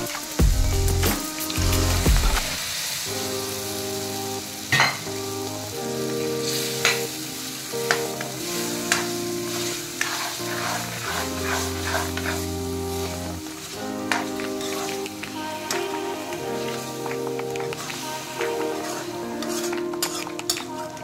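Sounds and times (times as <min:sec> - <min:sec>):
background music: 0:00.0 - 0:21.0
masala sizzling: 0:00.0 - 0:21.0
ladle scraping metal pan: 0:10.0 - 0:12.5, 0:17.6 - 0:20.6.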